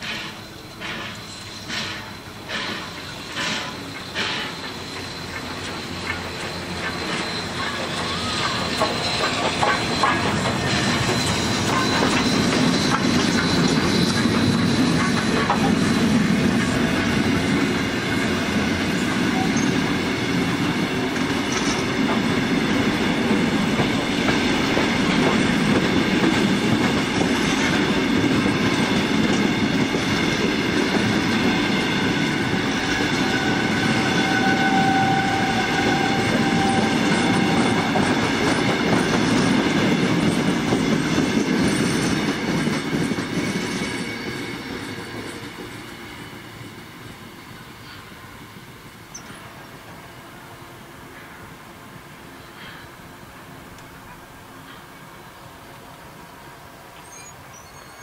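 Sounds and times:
train wheels clattering over rails: 0.0 - 49.6
thin wheel squeal: 0.1 - 15.6, 19.3 - 20.0, 32.7 - 38.3, 57.0 - 58.0.

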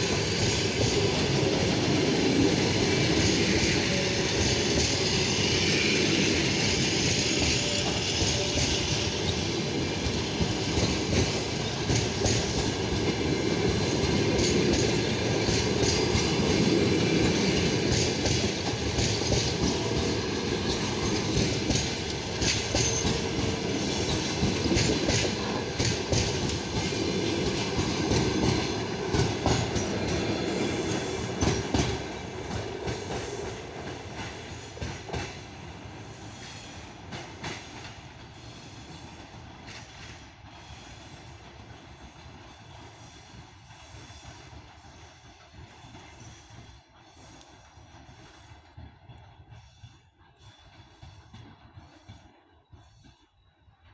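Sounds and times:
train wheels clattering over rail joints: 0.0 - 35.6
train rumble: 0.0 - 53.9.

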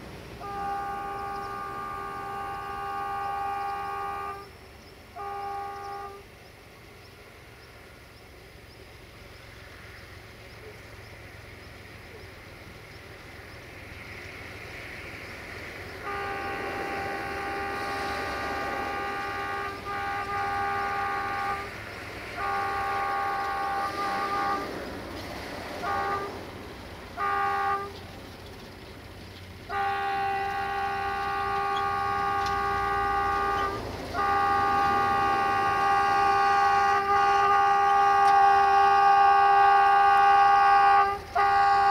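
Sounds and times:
locomotive horn blasts: 0.0 - 6.3, 15.9 - 28.0, 29.6 - 41.9
locomotive running: 0.0 - 41.9.

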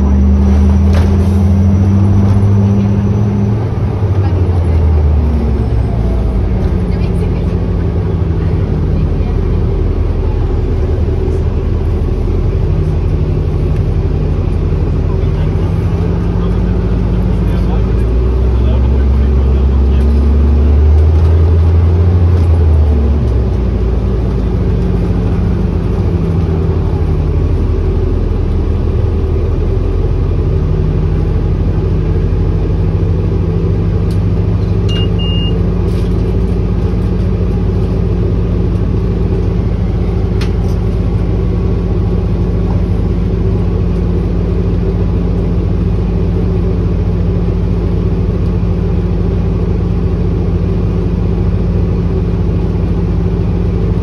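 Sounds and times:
bus drive hum and road rumble: 0.0 - 54.0
short high beep: 34.9 - 35.6.

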